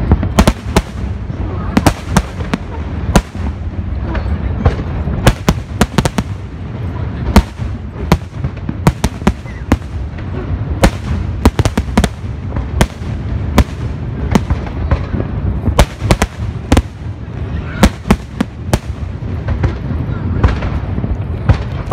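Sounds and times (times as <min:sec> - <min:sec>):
fireworks bursting with sharp bangs: 0:00.0 - 0:21.9
steady low rumble: 0:00.0 - 0:21.9.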